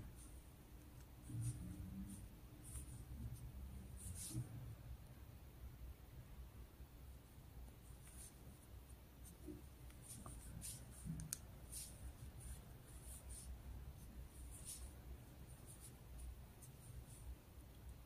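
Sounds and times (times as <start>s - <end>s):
crochet hook scratching yarn: 3.9s - 4.5s, 14.3s - 14.9s.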